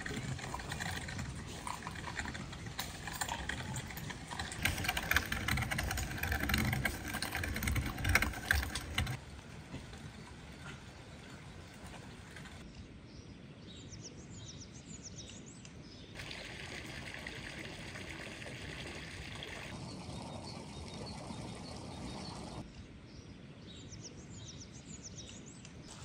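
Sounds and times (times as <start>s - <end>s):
trickling water hiss: 16.2s - 22.6s
small birds chirping: 19.4s - 26.0s.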